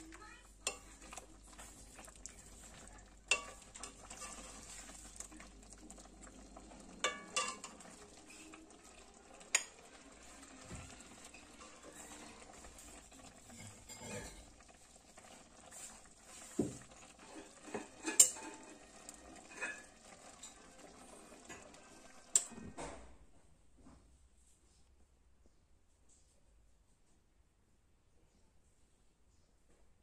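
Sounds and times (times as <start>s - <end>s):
steel ladle scraping metal pan: 3.3s - 5.0s, 7.0s - 8.0s, 11.1s - 14.7s, 15.8s - 20.9s.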